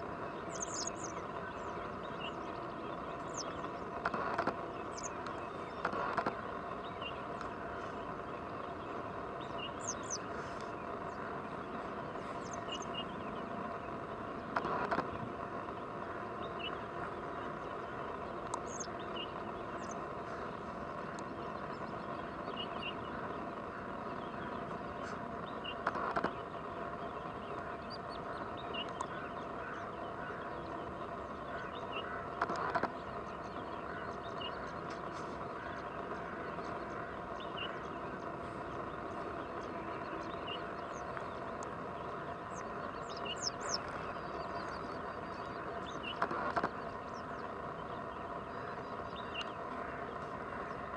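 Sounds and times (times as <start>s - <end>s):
outdoor background hum: 0.0s - 50.9s.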